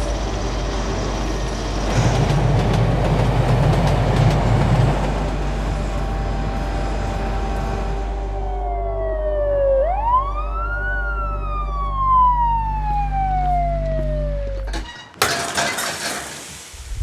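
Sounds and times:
car engine drone: 0:03.9 - 0:14.8
ambulance siren wailing: 0:06.4 - 0:14.7.

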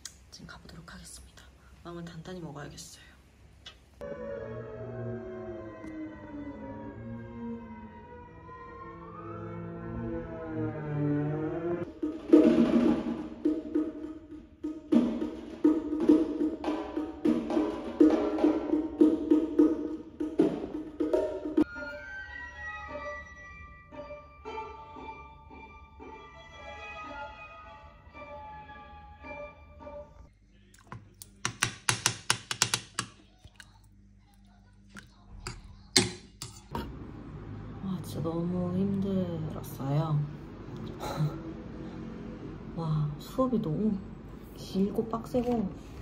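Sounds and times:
spoon knocking on pot: 0:30.8 - 0:33.3
metal spoon scraping a pot: 0:35.5 - 0:36.8.

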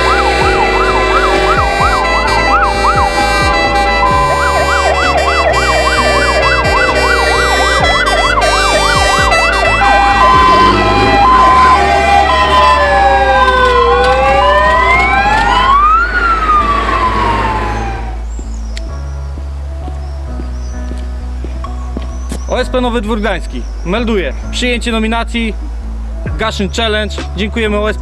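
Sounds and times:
two-tone hi-lo siren: 0:00.0 - 0:18.2
fire engine sirens wailing: 0:00.0 - 0:18.3.

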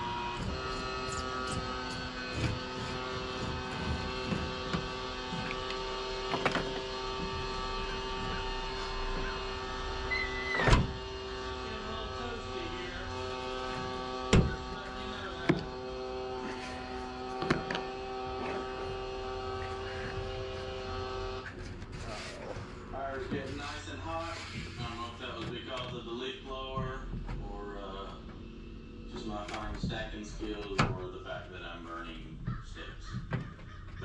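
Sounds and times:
steady hum of even tones: 0:00.0 - 0:21.5.

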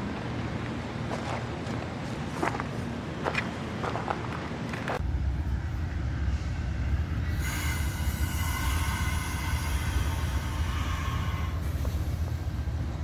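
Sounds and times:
train cars rumbling past: 0:00.0 - 0:13.0
high wheel squeal: 0:07.3 - 0:12.3.

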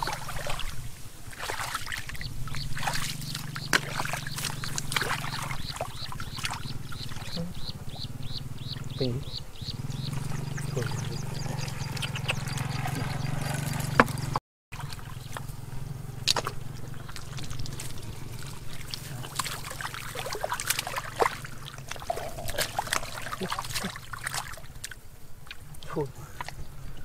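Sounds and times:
hands splashing in muddy water: 0:00.0 - 0:07.4, 0:16.3 - 0:25.6
steady low hum: 0:02.1 - 0:25.4.

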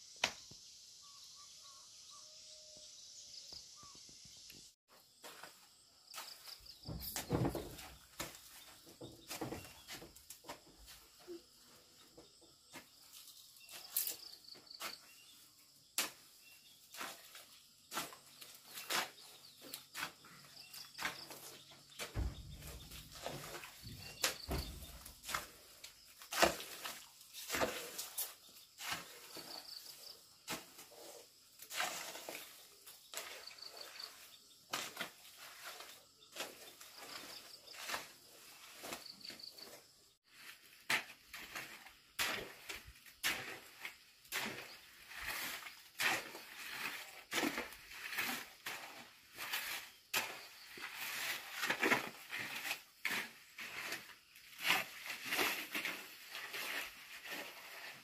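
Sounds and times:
insect chirping trill: 0:00.0 - 0:26.3
scrapes and taps of work: 0:20.9 - 0:25.6.

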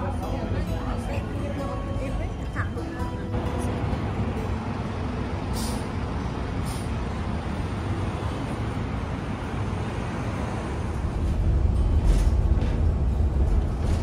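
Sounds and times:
bus engine rumbling: 0:00.0 - 0:14.0
street traffic: 0:00.0 - 0:14.0
bus air brake hisses: 0:05.5 - 0:05.9, 0:06.6 - 0:07.0.

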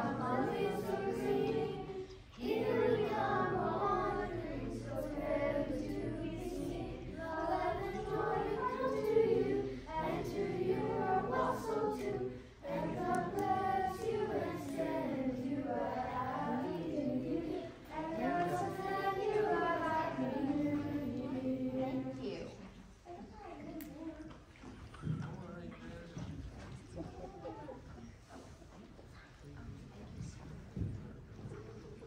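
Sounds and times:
children singing a carol: 0:00.0 - 0:22.3.

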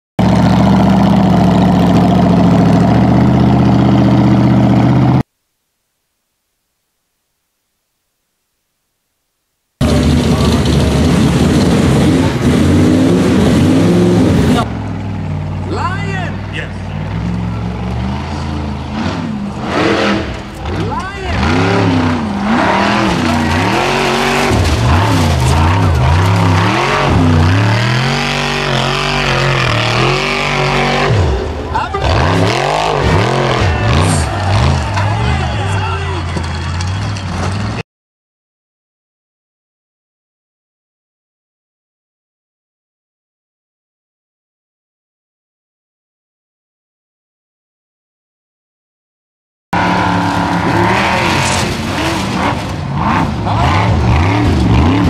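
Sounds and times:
buggy engine idling: 0:00.2 - 0:05.2, 0:09.8 - 0:11.9, 0:14.5 - 0:19.6
buggy engine revving hard: 0:00.2 - 0:05.2, 0:09.8 - 0:14.8, 0:16.7 - 0:37.8, 0:49.8 - 0:55.0.

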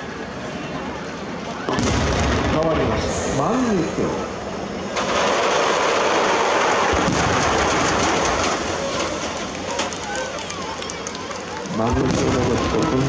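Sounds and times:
fireworks crackling: 0:04.9 - 0:13.0.

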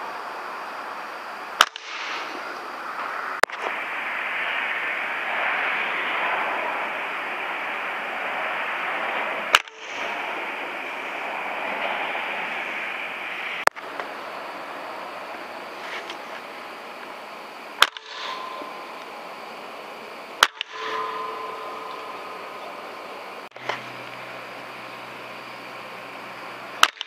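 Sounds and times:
background hiss: 0:00.0 - 0:27.0
air rifle firing cracks: 0:01.6 - 0:02.4, 0:17.8 - 0:21.4.

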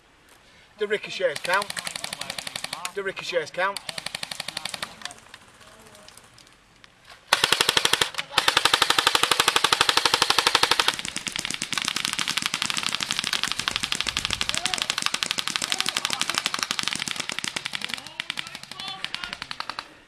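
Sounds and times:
airsoft rifle full-auto bursts: 0:01.2 - 0:03.0, 0:03.7 - 0:05.1, 0:07.3 - 0:20.0.

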